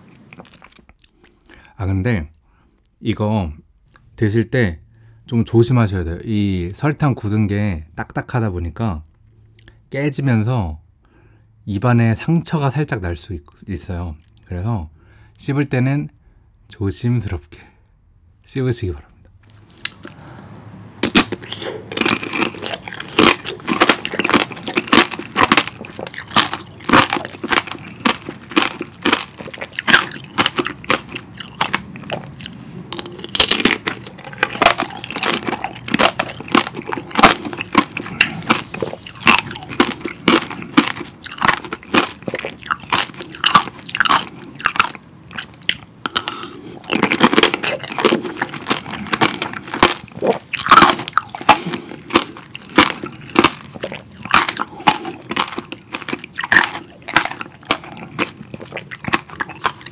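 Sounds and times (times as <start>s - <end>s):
crunching candy shell: 21.0s - 59.9s.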